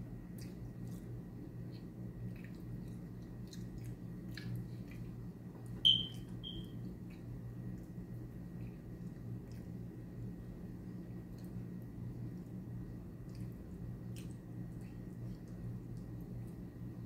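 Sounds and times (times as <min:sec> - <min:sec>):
wet eating and chewing: 0:00.0 - 0:06.4, 0:07.0 - 0:16.9
high electronic beep: 0:05.9 - 0:06.6.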